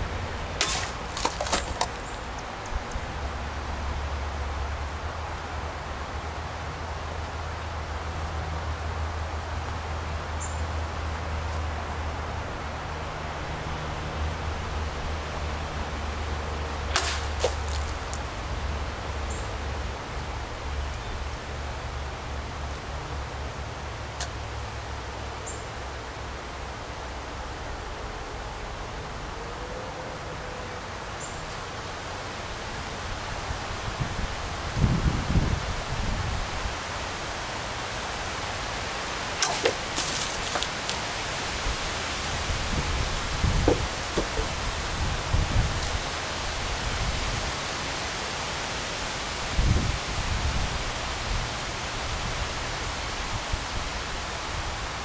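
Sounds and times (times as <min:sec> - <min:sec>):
low hum and hiss: 0:00.0 - 0:55.0
wind rustle: 0:00.0 - 0:55.0
sword hitting water bottle: 0:00.6 - 0:02.1, 0:16.9 - 0:18.2, 0:39.4 - 0:40.7
water splashing: 0:00.6 - 0:02.5, 0:16.9 - 0:18.4, 0:39.3 - 0:41.1
jug knocking on board: 0:43.6 - 0:44.6.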